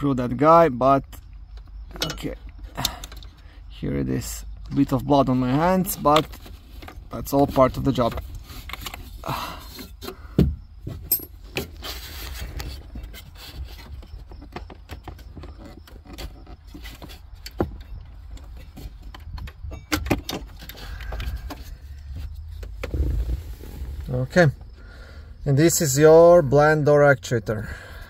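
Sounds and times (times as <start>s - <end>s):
low rumble: 21.8s - 24.8s.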